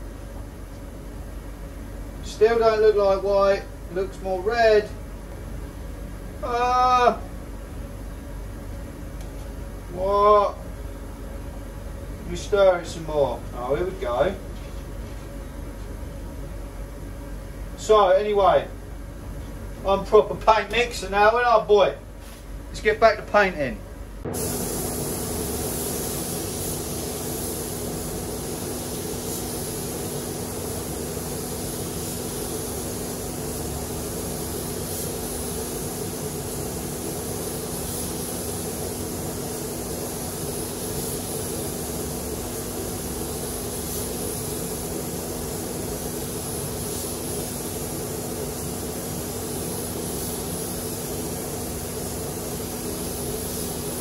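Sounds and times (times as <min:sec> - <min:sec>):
spray gun hissing: 0:24.3 - 0:54.0.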